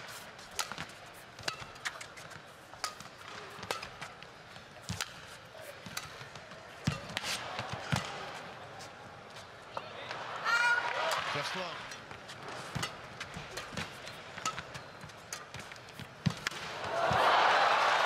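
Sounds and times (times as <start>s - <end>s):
racket striking shuttlecock: 0.1s - 8.3s, 11.9s - 17.2s.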